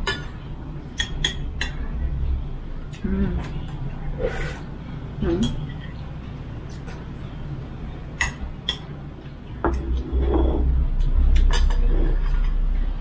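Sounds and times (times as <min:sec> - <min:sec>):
dishes and utensils clinking: 0:00.0 - 0:02.0, 0:05.3 - 0:07.3, 0:08.1 - 0:12.8.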